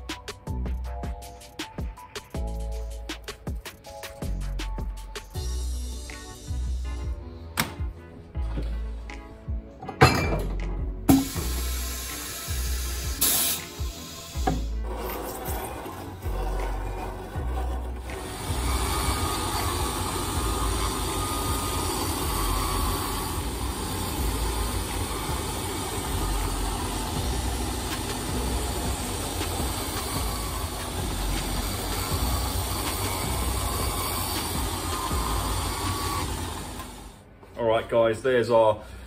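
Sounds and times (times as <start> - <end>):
machine running with spinning cutter: 11.2 - 37.2.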